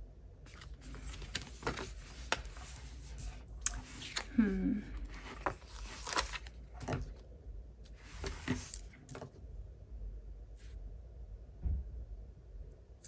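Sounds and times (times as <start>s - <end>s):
paper rustling and tapping: 0.5s - 2.8s
low thump: 11.6s - 12.0s.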